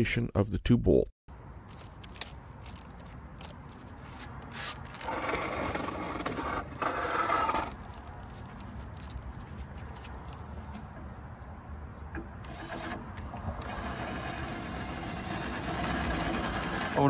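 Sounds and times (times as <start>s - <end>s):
cordless drill running: 12.4s - 13.0s, 13.6s - 17.0s.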